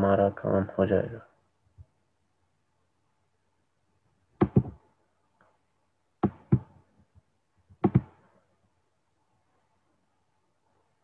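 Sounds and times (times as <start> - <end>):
loud double knocks: 4.4 - 4.8, 6.2 - 6.7, 7.8 - 8.2.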